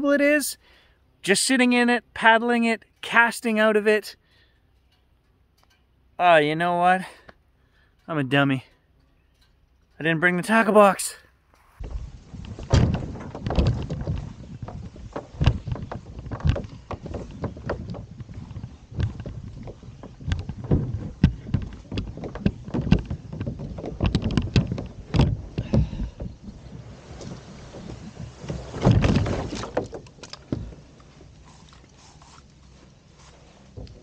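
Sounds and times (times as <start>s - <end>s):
kayak scraping rush: 11.6s - 34.0s
kayak knocking and rattling: 11.8s - 34.0s.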